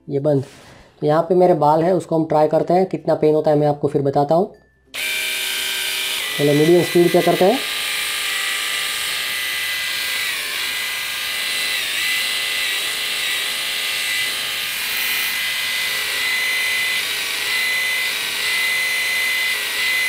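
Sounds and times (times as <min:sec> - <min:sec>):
epilator whining: 0:05.0 - 0:20.0.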